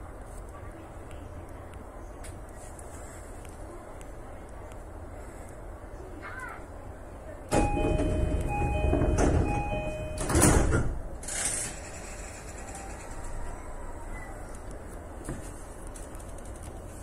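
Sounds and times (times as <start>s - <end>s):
two-note door chime: 7.5s - 10.6s
train doors sliding shut: 7.5s - 14.4s.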